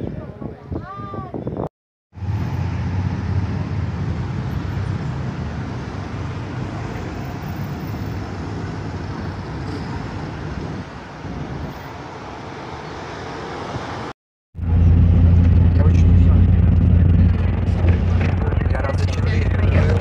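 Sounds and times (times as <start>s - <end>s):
cars and motorcycles driving past: 2.2s - 20.0s
low engine rumble: 14.6s - 20.0s.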